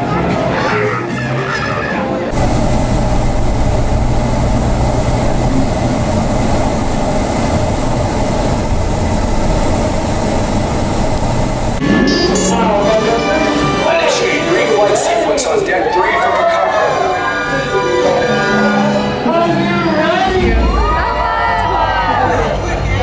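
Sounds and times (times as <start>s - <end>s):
van road noise: 2.3s - 11.8s.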